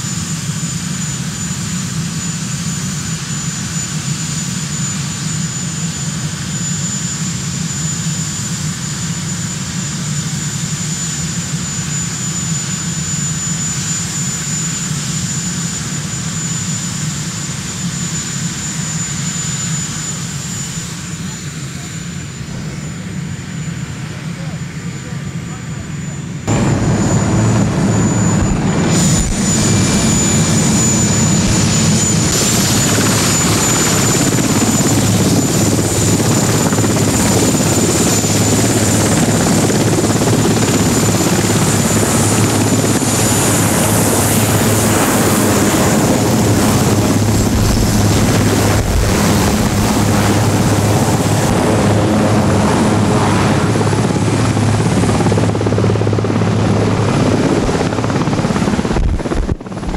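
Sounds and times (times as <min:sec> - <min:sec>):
helicopter rotor and engines: 0:00.0 - 0:59.9.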